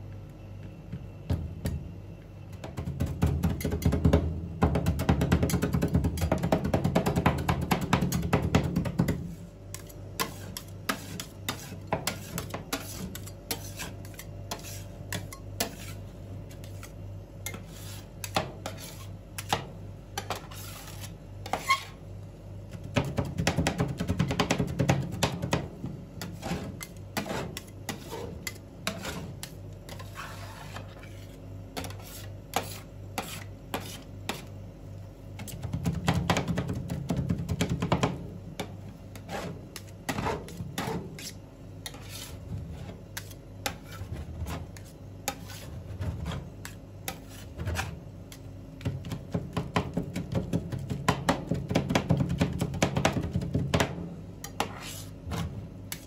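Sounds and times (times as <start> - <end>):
low steady hum: 0.0 - 56.0
spatulas scraping and mixing: 9.0 - 22.1, 24.4 - 34.6, 38.0 - 50.4, 54.4 - 56.0.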